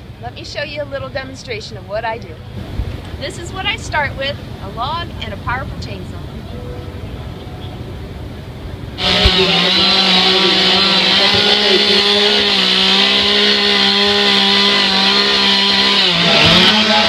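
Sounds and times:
chainsaw carving into log: 9.0 - 17.0.

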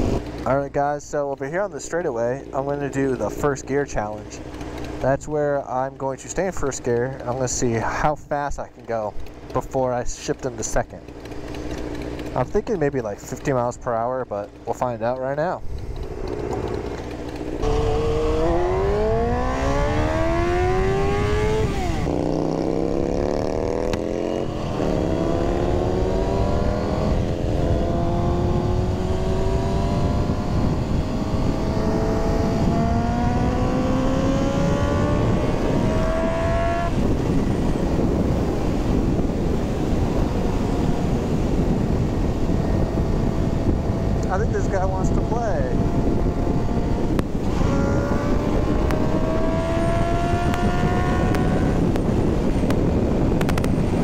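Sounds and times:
wind rush: 0.0 - 0.4, 15.6 - 54.0
motorcycle engine accelerating: 0.0 - 54.0.

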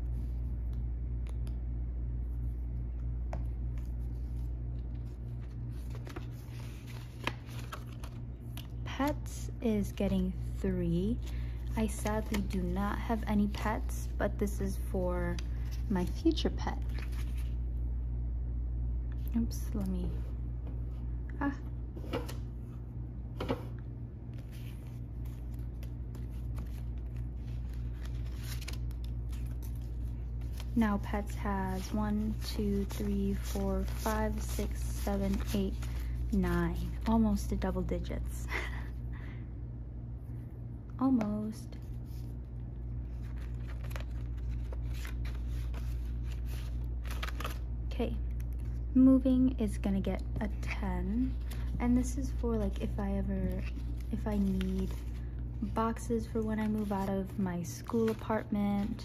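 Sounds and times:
steady low hum: 0.0 - 59.0
paper rustling: 3.7 - 8.7, 15.3 - 17.6, 24.3 - 37.1, 43.0 - 47.6, 53.4 - 55.6, 56.6 - 59.0.

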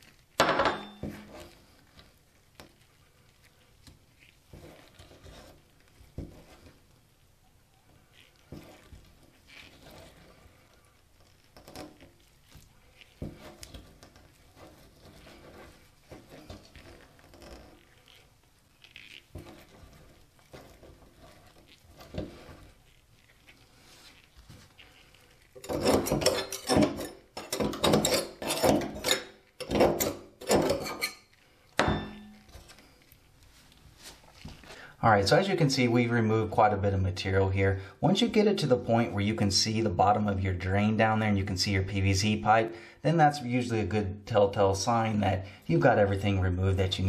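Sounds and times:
knife scraping metal strainer: 0.0 - 6.9, 8.2 - 33.1.

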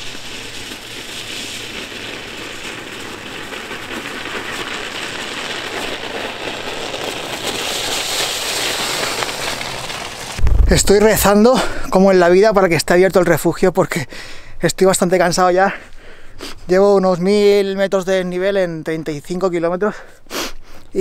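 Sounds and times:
bike tyres crunching over snow: 0.0 - 11.5.

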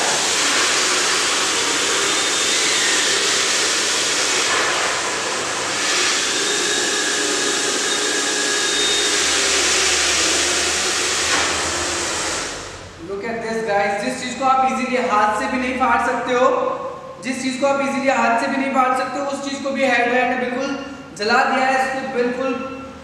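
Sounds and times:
hair dryer blowing with fan whine: 0.0 - 13.0.

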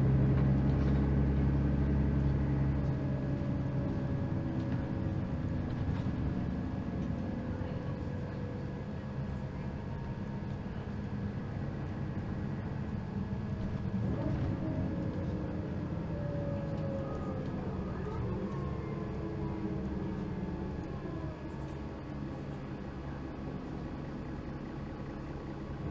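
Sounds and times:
bus engine hum: 0.0 - 25.9
faint whining tones: 12.7 - 23.2.

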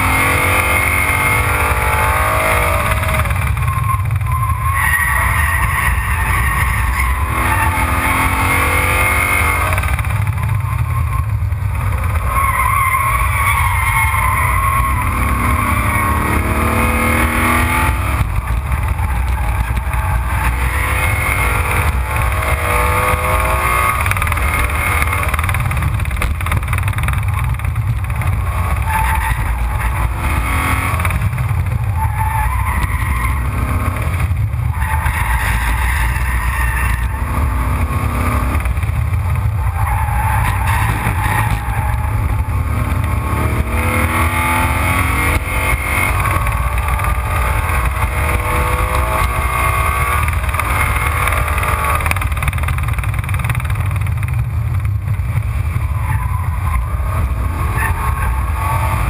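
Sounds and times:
race car engine revving: 0.0 - 59.0
road roar: 0.0 - 59.0.

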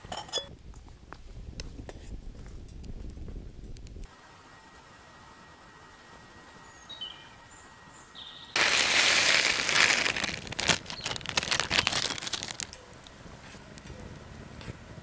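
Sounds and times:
plastic bag crinkling: 8.6 - 12.8.

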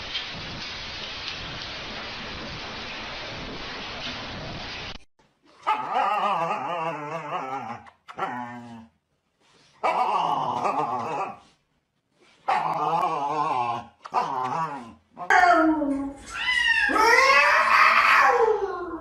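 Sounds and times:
husky howling: 16.4 - 19.0.

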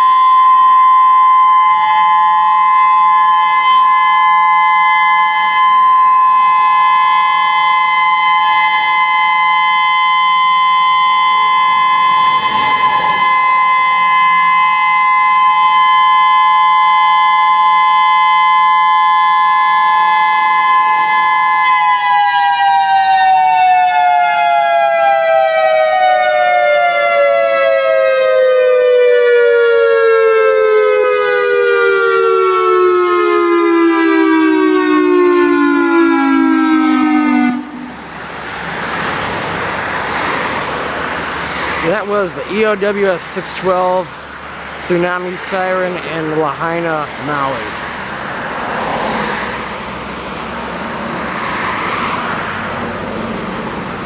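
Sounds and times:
warning siren alert tone: 0.0 - 38.2.

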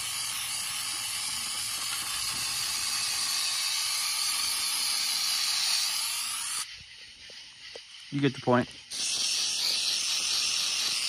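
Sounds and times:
aerosol can spraying hiss: 0.0 - 11.0.

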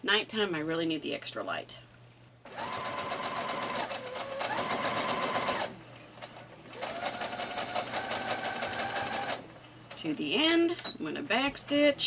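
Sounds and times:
sewing machine motor running: 2.5 - 5.7, 6.7 - 9.4.

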